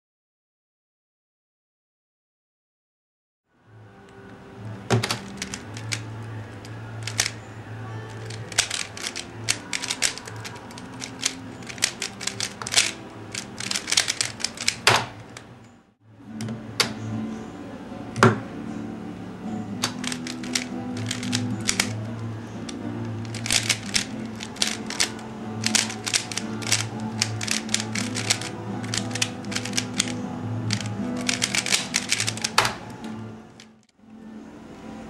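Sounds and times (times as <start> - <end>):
background music: 3.7 - 35.0
speed cube clicking: 4.9 - 7.4, 8.1 - 15.5, 19.8 - 33.8.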